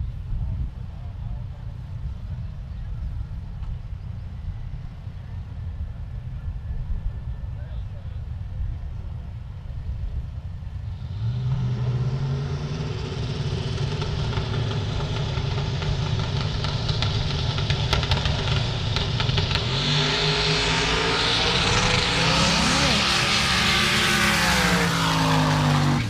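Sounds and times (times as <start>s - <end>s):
drag race engines revving: 10.7s - 26.0s.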